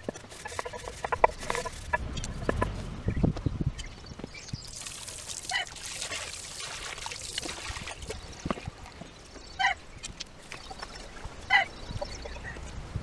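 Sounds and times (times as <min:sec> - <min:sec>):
brush scrubbing: 0:00.0 - 0:02.0
water sloshing in a sink: 0:04.8 - 0:09.1
bird calling: 0:10.6 - 0:12.6.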